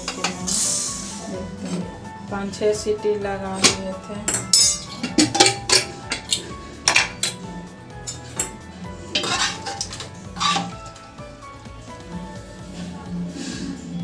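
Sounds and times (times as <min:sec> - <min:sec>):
faint background music: 0:00.0 - 0:14.0
metal lid clanking: 0:03.6 - 0:11.0
spoon scraping inside pot: 0:08.1 - 0:10.9.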